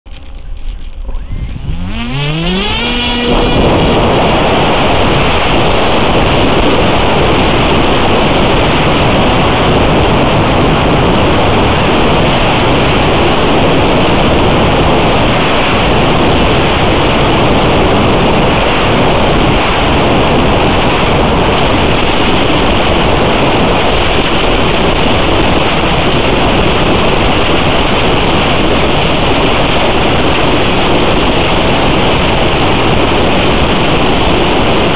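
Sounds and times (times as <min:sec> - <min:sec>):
electric motor whining: 0:00.1 - 0:08.5
propeller and wind rush: 0:00.1 - 0:34.9.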